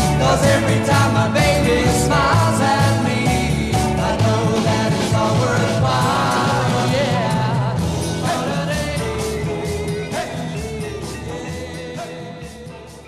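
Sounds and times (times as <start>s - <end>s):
pop-rock song with singing: 0.0s - 13.0s.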